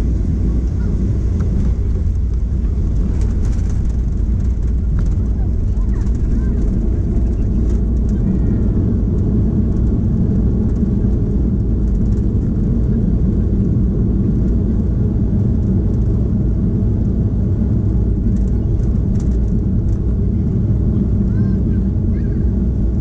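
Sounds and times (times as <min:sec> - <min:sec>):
wheels rolling on pavement: 0:00.0 - 0:13.8
aircraft engines rumbling: 0:00.0 - 0:23.0.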